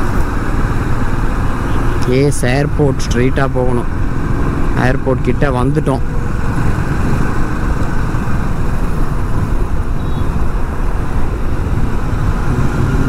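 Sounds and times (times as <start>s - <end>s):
motorcycle engine and road rumble: 0.0s - 13.0s
wind rush on microphone: 6.0s - 13.0s.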